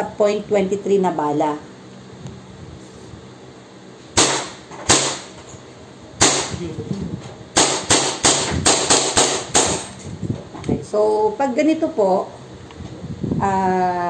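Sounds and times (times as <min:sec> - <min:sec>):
airsoft pistol shots: 0:04.2 - 0:05.3, 0:06.2 - 0:06.6, 0:07.6 - 0:09.9.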